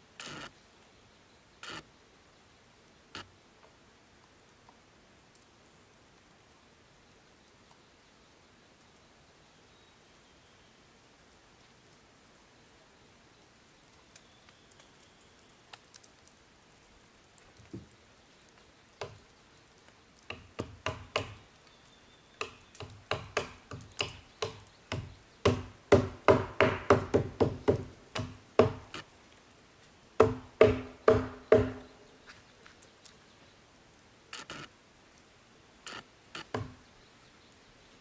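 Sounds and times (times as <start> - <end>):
hammer striking log: 20.3 - 21.4, 22.4 - 28.9, 30.2 - 31.9, 36.5 - 36.8.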